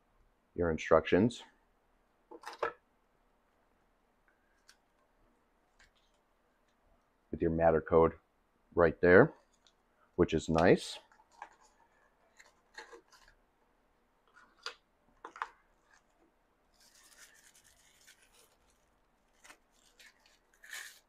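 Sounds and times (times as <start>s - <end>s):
thin wrapping rustling: 11.0s - 13.4s, 14.3s - 21.0s.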